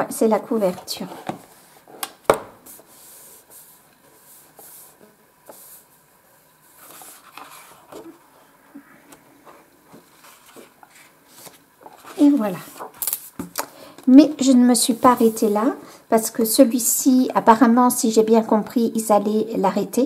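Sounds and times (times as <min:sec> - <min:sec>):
tap on book: 0:02.3 - 0:02.6
fingers rustling paper pages: 0:06.7 - 0:08.2, 0:09.1 - 0:13.7.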